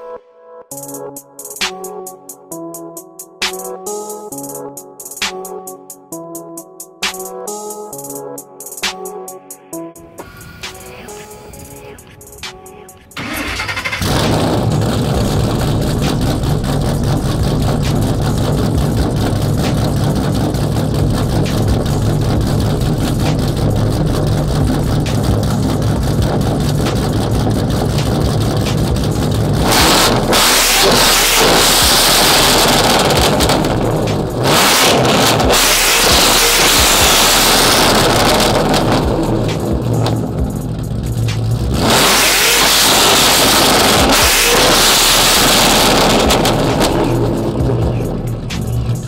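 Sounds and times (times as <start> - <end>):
car engine idling: 10.0 - 49.0.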